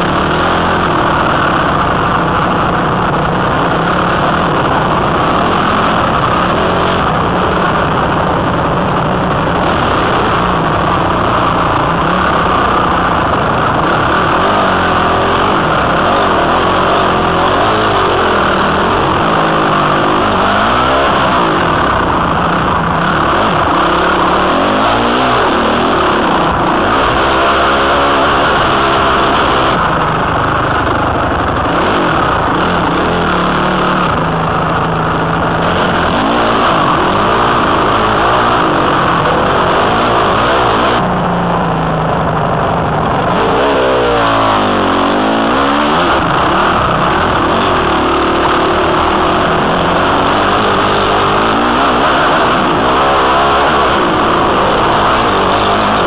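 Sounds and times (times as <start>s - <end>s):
dirt bike engine revving: 0.0s - 56.0s.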